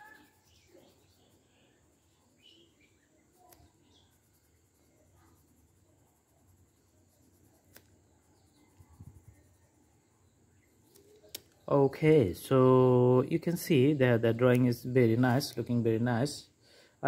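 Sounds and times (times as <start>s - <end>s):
pencil scratching on paper: 0.0s - 1.4s, 2.9s - 9.7s
small clicks: 10.8s - 11.7s.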